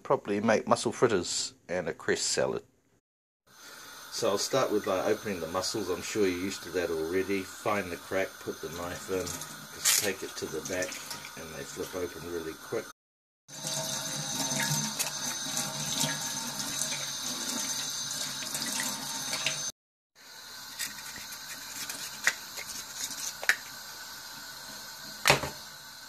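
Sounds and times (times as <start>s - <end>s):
tap running into metal sink: 25.2s - 25.6s.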